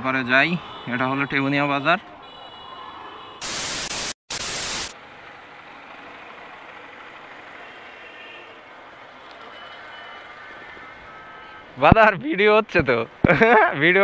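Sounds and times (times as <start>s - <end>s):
burst of hissing static: 3.4s - 5.0s.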